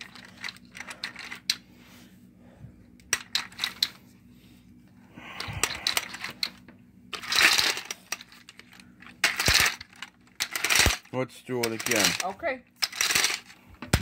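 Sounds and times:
toy helicopter rattling on tile: 0.0 - 1.6, 3.1 - 4.0, 5.4 - 14.0.

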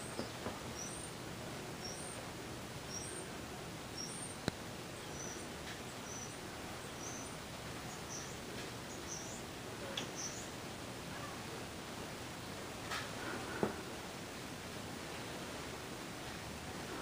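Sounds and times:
small birds chirping: 0.0 - 11.6
background hiss: 0.0 - 17.0.

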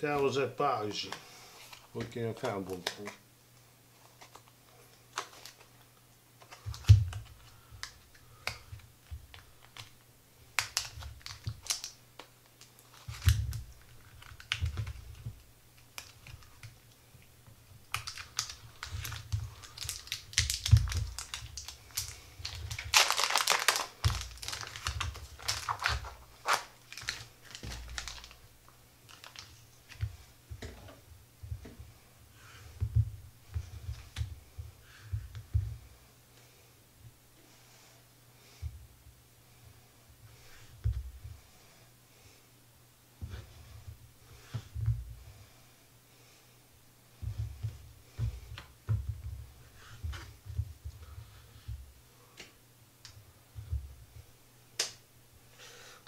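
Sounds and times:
plastic tearing rustle: 4.0 - 5.8, 10.6 - 16.8, 17.8 - 28.4, 29.1 - 30.0
plastic packaging crinkling: 4.0 - 8.6, 9.3 - 16.9, 17.8 - 30.0.

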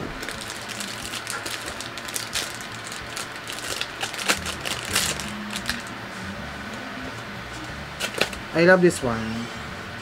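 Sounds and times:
plastic case crackles and clicks: 0.2 - 5.9, 8.0 - 8.4.

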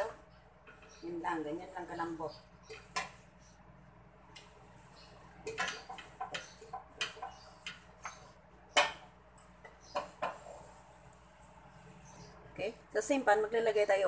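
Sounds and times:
wooden spatula scraping a pan: 9.9 - 11.5.

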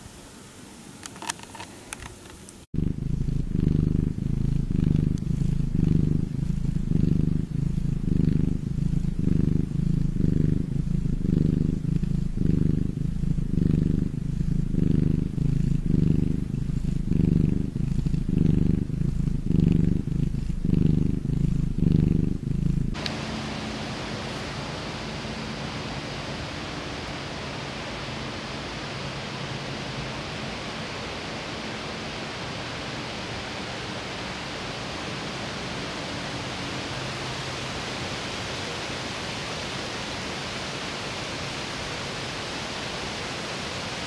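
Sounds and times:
small clicks: 1.0 - 2.6
cat purring: 2.7 - 44.0.

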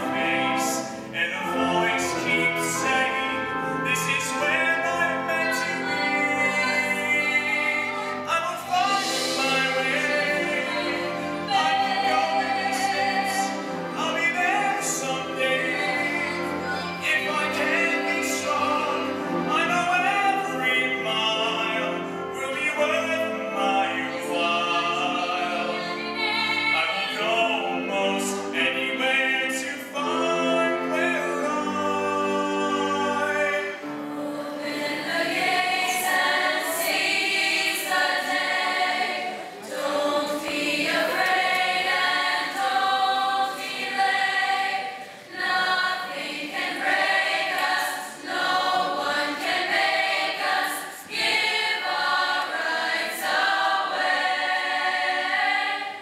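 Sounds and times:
orchestra playing: 0.0 - 44.3
choir singing: 0.0 - 56.0.

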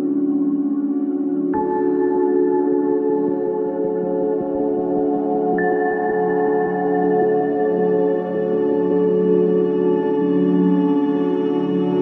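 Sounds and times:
ambient music held tones: 0.0 - 12.0.

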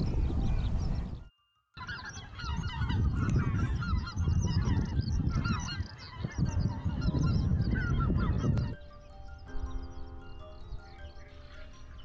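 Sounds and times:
geese calling in flight: 1.8 - 9.5, 10.9 - 12.0.

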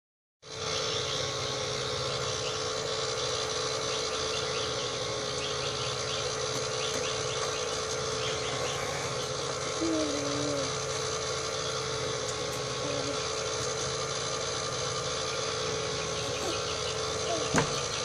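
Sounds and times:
fan motor whining: 0.4 - 18.0
child's vocal sound: 9.8 - 10.8, 17.2 - 17.6.

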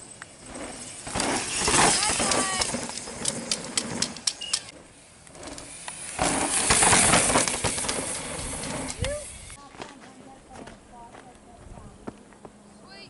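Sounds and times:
mountain bike clicks and rattles: 0.0 - 9.6
tyres skidding through gravel: 0.0 - 9.6.

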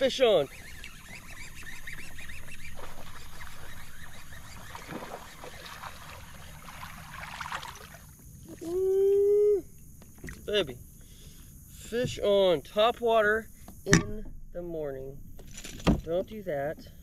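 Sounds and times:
water splashing around kayak: 0.0 - 8.7
person shouting: 8.6 - 9.7.

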